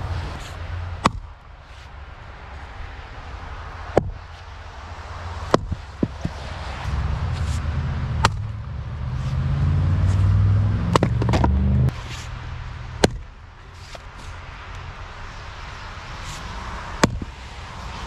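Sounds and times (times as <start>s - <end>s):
low engine rumble: 0.0s - 15.2s
splitting maul striking wood: 1.0s - 1.3s, 3.9s - 4.2s, 5.5s - 6.4s, 8.2s - 8.5s, 10.9s - 11.6s, 13.0s - 13.3s, 17.0s - 17.3s.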